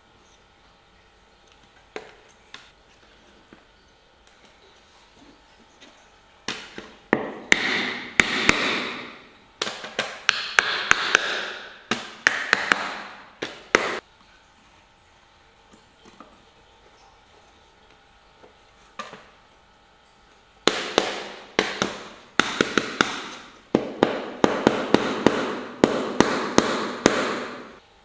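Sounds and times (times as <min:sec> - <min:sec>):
wooden block knocking: 0:09.6 - 0:14.0.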